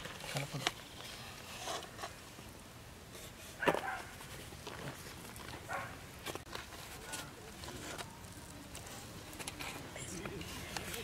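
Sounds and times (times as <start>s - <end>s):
faint knocks and scrapes: 0.0s - 2.5s
dog barking: 3.6s - 4.1s, 5.7s - 6.0s.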